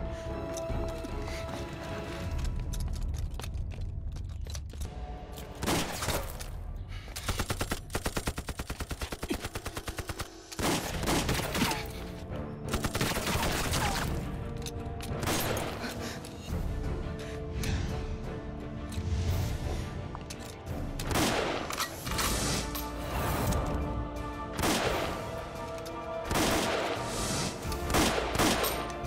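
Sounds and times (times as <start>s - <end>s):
dramatic background music: 0.0s - 29.0s
gunshots: 21.0s - 22.1s, 24.6s - 25.4s, 26.3s - 29.0s.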